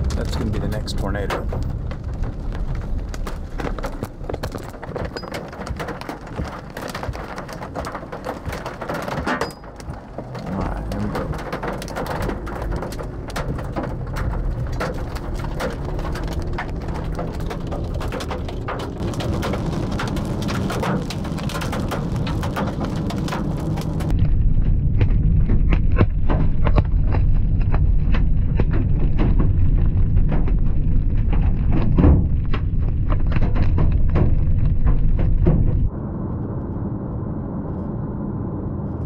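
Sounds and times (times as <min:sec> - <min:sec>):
raindrops on car windshield: 0:00.0 - 0:24.2
low rumble: 0:00.0 - 0:39.0.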